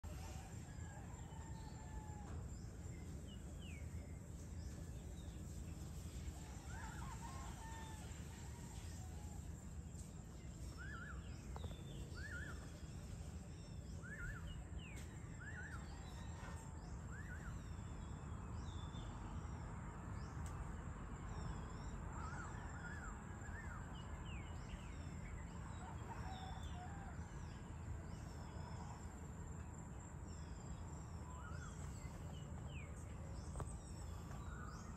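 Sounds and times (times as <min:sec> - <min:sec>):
birds chirping and whistling: 0:10.5 - 0:18.9.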